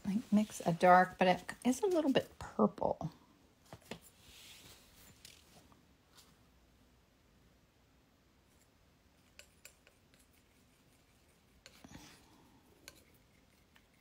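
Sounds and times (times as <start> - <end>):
palette knife scraping paint: 8.5 - 14.0.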